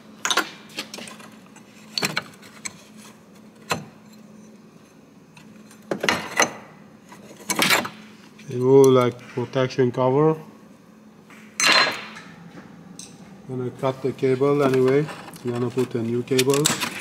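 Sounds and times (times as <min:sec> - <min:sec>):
clicks and knocks of plastic and metal: 0:14.6 - 0:17.0.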